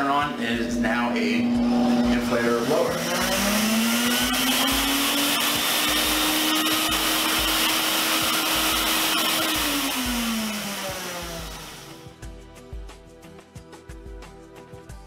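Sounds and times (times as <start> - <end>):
vacuum cleaner motor whine: 0.0 - 12.1
air rushing from blower: 0.2 - 6.4.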